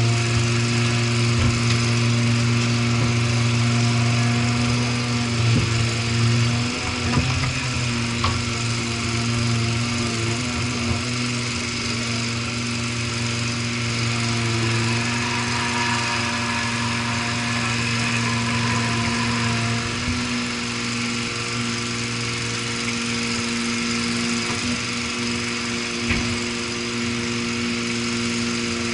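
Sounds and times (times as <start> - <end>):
mini dumper engine running: 0.0 - 28.9.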